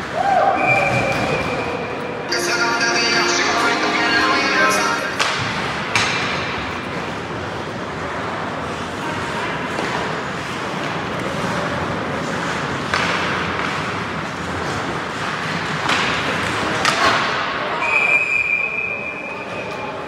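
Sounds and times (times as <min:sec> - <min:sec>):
steady high tone: 0:02.1 - 0:06.0
skates and sticks on ice: 0:08.6 - 0:17.3.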